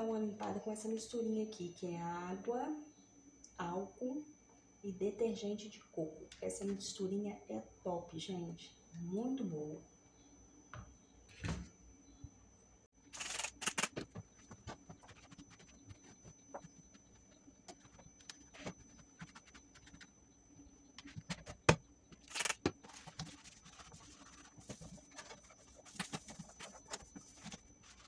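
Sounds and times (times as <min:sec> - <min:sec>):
cloth rubbing on appliance: 0:14.3 - 0:20.1, 0:22.8 - 0:28.0.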